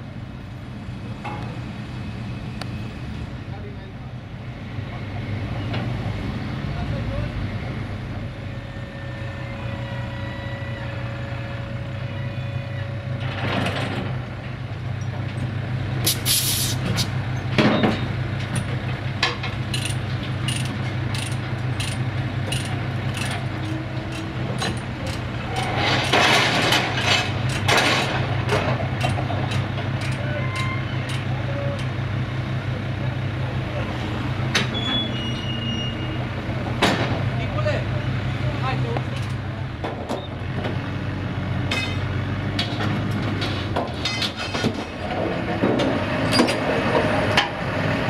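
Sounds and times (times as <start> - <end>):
hiss of air: 16.0 - 17.1.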